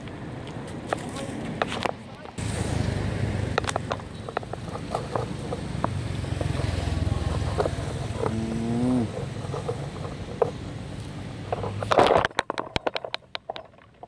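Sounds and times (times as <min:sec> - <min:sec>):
sharp clicks and crackles: 0:03.5 - 0:08.4, 0:11.5 - 0:14.0.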